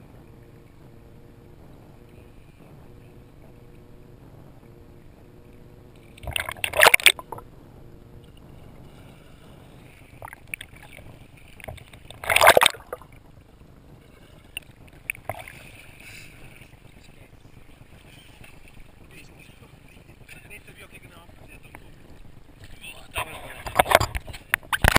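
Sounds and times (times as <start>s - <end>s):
loud water splash: 6.2s - 7.4s, 11.6s - 13.1s.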